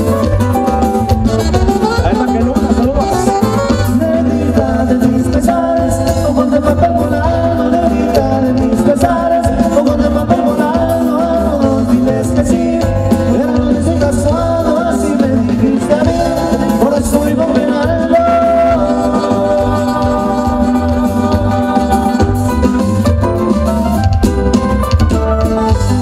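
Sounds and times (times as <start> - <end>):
live band playing dance music: 0.0 - 26.0
person singing: 3.8 - 23.1.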